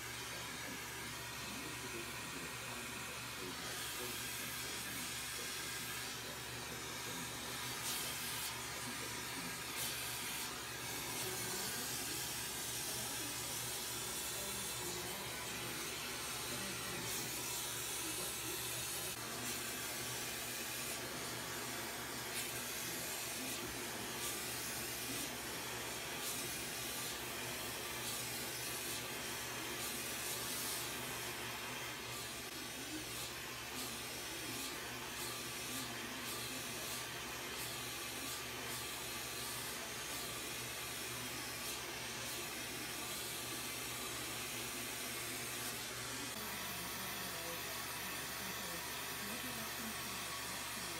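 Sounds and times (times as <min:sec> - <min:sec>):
bench torch hissing: 0:03.4 - 0:41.0.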